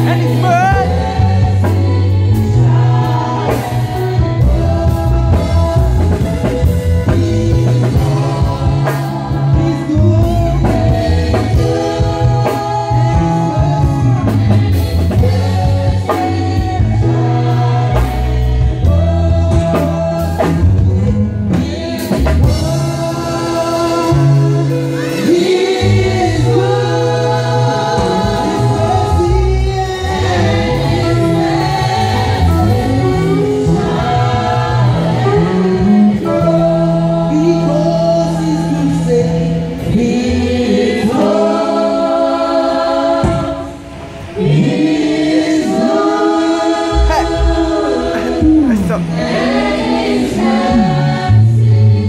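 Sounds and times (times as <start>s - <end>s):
choir singing praise song: 0.0s - 52.0s
live band playing: 0.0s - 52.0s.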